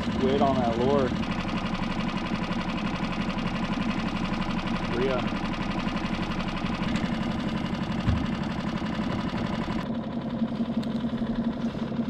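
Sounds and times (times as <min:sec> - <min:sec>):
small boat engine idling: 0:00.0 - 0:12.0
low thump: 0:08.0 - 0:08.4.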